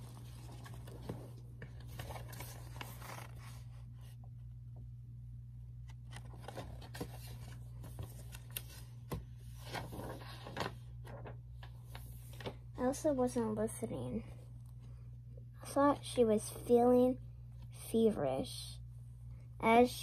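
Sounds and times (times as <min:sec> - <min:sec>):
book pages rustling: 0:00.0 - 0:04.2, 0:05.8 - 0:12.6
steady low hum: 0:00.0 - 0:20.0.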